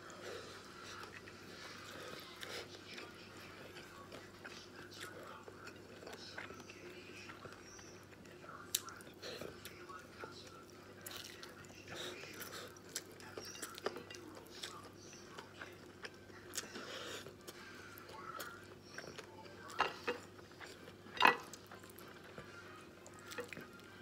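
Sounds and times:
chewing: 0:00.0 - 0:24.0
clinks against plate: 0:21.2 - 0:21.5.

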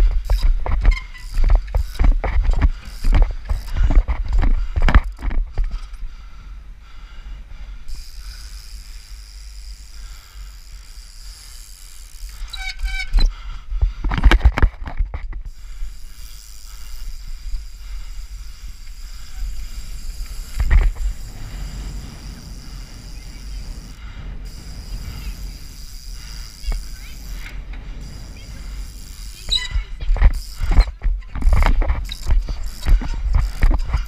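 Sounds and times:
bike landing knocks and thumps: 0:00.0 - 0:05.7
trials bike engine: 0:00.0 - 0:34.0
wind buffeting microphone: 0:16.9 - 0:34.0
short squeal: 0:29.4 - 0:29.9.

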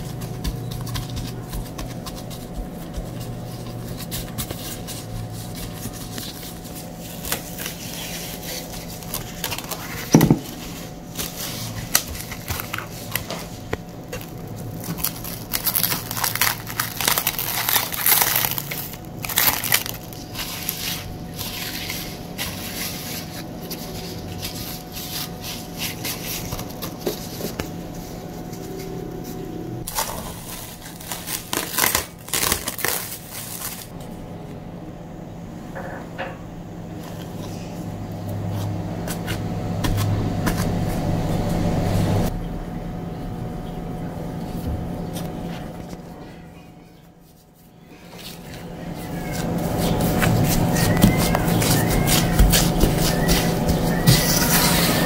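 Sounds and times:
cling film crinkling: 0:00.0 - 0:27.3, 0:29.8 - 0:33.9.

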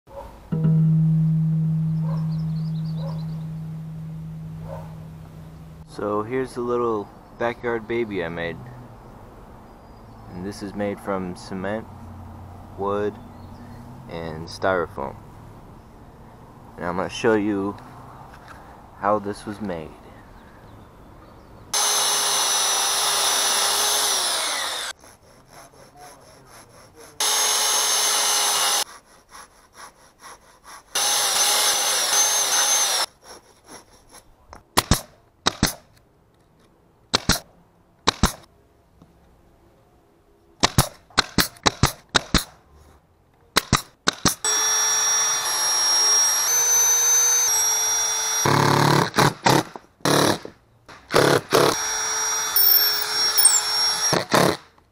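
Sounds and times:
cordless drill driving screws: 0:21.8 - 0:24.9, 0:27.2 - 0:28.8, 0:31.0 - 0:33.1, 0:44.5 - 0:48.9, 0:51.2 - 0:54.6
power tool motor: 0:21.8 - 0:25.0, 0:27.2 - 0:28.9, 0:31.0 - 0:33.1, 0:44.5 - 0:48.9, 0:51.2 - 0:54.6
nail gun shots: 0:34.8 - 0:35.9, 0:37.1 - 0:38.5, 0:40.6 - 0:42.5, 0:43.6 - 0:44.4.

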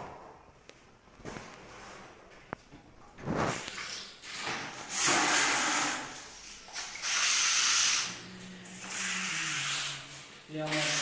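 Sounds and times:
broom sweeping cement floor: 0:03.2 - 0:08.2, 0:08.8 - 0:11.0.

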